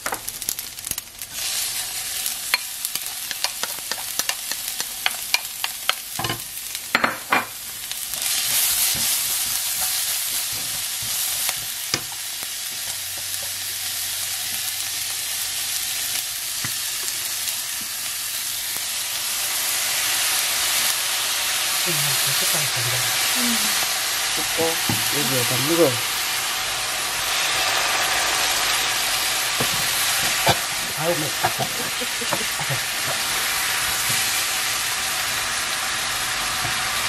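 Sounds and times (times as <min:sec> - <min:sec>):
food sizzling in a pan: 0:00.0 - 0:37.0
wooden spoon tapping and scraping: 0:02.5 - 0:06.4.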